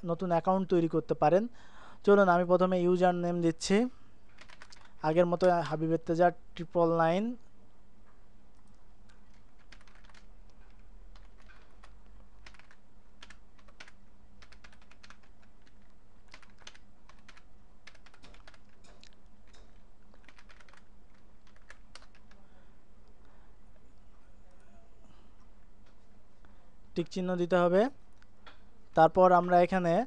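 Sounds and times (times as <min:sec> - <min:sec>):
low electrical hum: 0:00.0 - 0:30.0
typing on computer keyboard: 0:04.3 - 0:05.0, 0:09.1 - 0:22.4.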